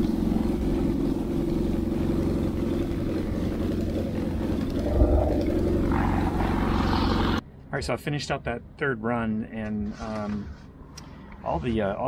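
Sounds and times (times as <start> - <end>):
light aircraft engine and propeller: 0.0 - 7.8.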